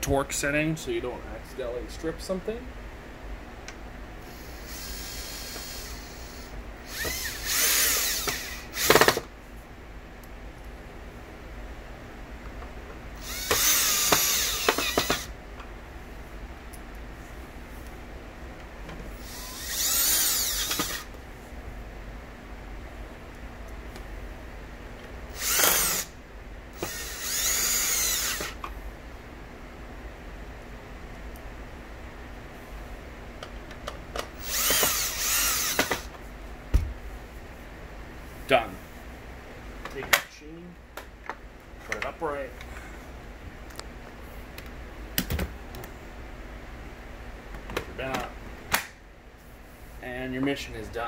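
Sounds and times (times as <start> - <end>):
power drill driving screws: 4.3 - 9.3, 13.2 - 15.3, 19.2 - 21.1, 25.3 - 26.1, 26.8 - 28.6, 34.4 - 36.1.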